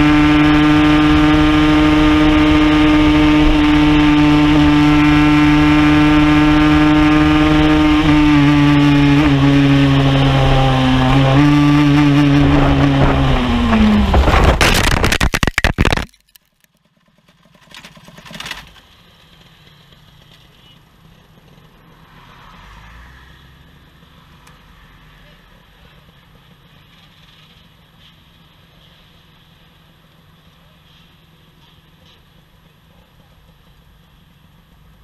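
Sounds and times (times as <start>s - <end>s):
motorcycle engine running: 0.0s - 14.6s, 16.7s - 22.0s
motorcycle crash scraping: 12.5s - 19.0s.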